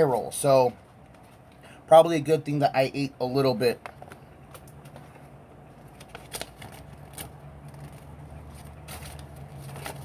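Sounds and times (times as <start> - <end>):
low steady hum: 0.0 - 10.0
cardboard box clicks and rustles: 6.0 - 10.0.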